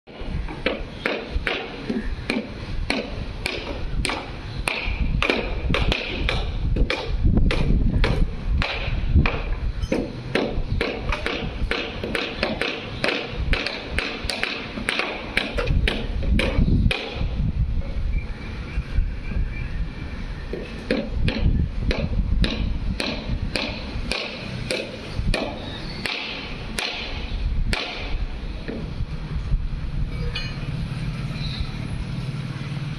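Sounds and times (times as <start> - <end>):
hammer striking wooden planks: 0.1 - 17.3, 20.5 - 28.9.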